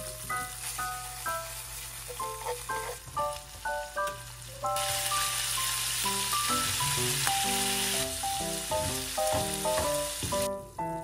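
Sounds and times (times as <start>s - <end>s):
meat sizzling in a pan: 0.0s - 10.6s.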